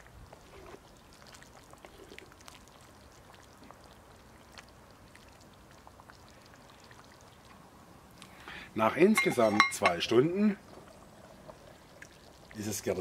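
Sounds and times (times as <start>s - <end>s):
stew sloshing: 0.0s - 7.7s.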